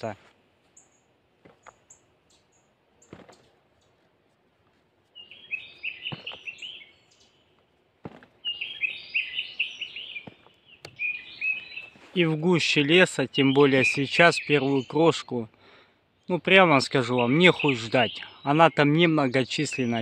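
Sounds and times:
bird song jingling phrases: 0:05.1 - 0:20.0.

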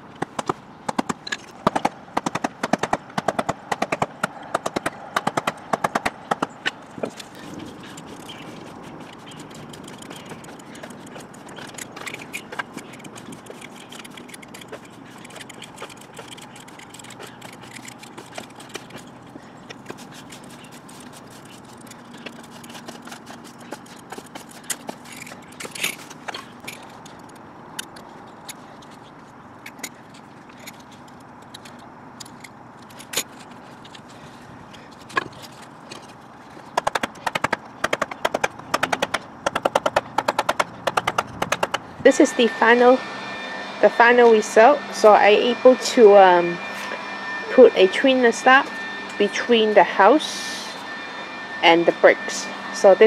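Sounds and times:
steady background noise: 0:00.0 - 0:53.0
knife clicking and scraping rubber: 0:05.5 - 0:29.1.

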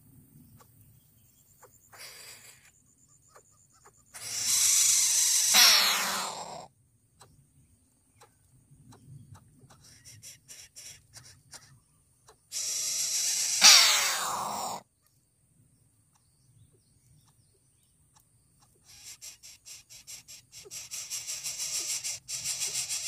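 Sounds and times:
nestlings hissing: 0:04.2 - 0:06.6, 0:12.5 - 0:14.8, 0:18.8 - 0:23.0.

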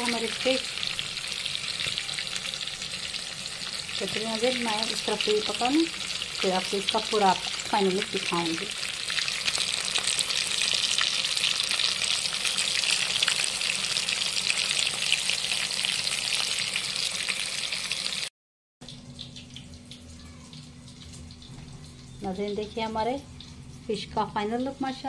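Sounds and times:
fish sizzling in hot oil: 0:00.0 - 0:18.3, 0:18.9 - 0:25.0.

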